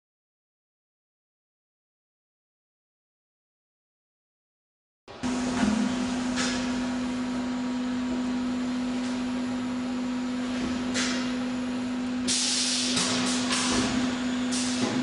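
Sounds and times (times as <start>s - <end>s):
machine hum: 5.1s - 15.0s.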